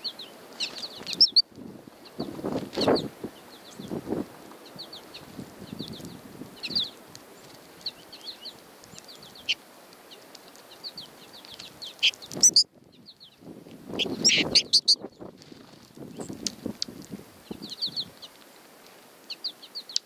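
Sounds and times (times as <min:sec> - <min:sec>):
goldfinches chirping: 0:00.0 - 0:01.4, 0:07.8 - 0:13.4, 0:14.0 - 0:15.3.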